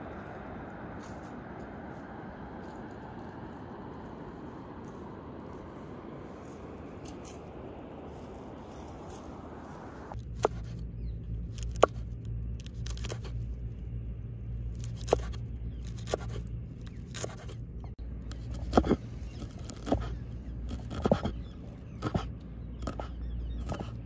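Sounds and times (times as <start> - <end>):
steady low hum: 0.0 - 24.0
knife chopping on wooden board: 19.6 - 20.1, 20.7 - 21.4.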